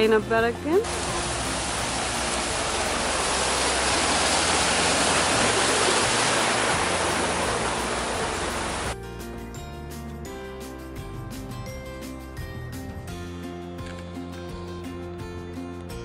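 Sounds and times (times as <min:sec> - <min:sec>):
stream splashing over rocks: 0:00.8 - 0:09.0.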